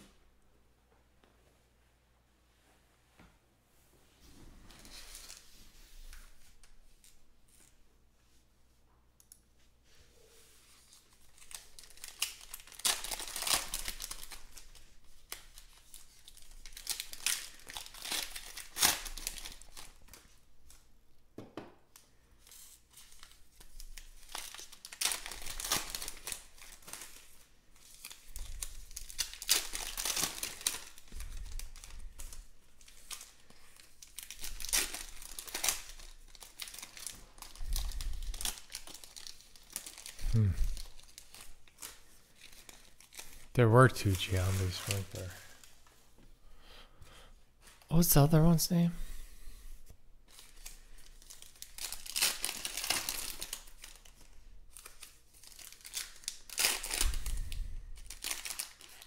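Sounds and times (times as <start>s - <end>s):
foil wrappers tearing and crinkling: 10.8s - 20.8s, 22.4s - 45.7s, 50.3s - 59.0s.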